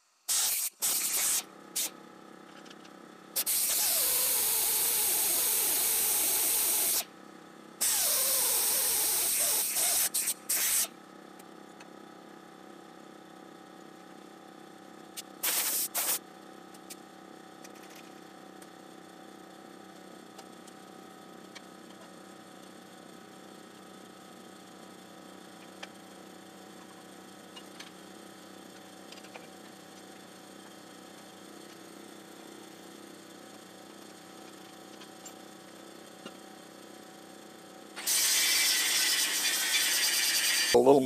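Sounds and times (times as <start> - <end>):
air hiss: 0.3 - 1.9, 15.4 - 16.2
pneumatic drill drilling steel: 3.4 - 7.0, 7.8 - 10.8, 38.0 - 40.8.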